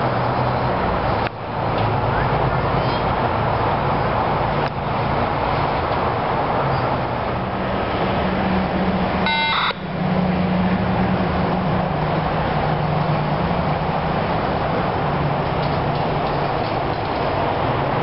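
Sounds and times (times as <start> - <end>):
short electronic beep: 9.2 - 9.9.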